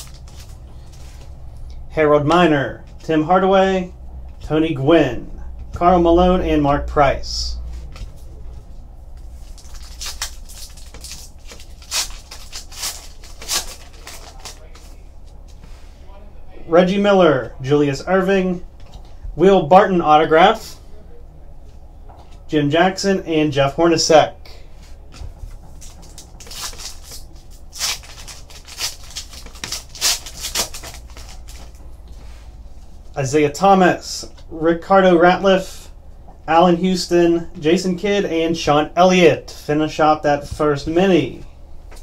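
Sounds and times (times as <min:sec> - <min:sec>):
foil wrapper crinkling and tearing: 0:00.0 - 0:01.2, 0:09.3 - 0:15.1, 0:25.7 - 0:31.8.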